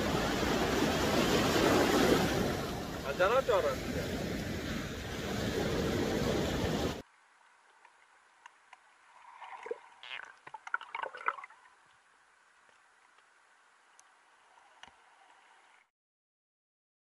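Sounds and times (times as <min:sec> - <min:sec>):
gurgling and crackling: 0:09.2 - 0:12.0.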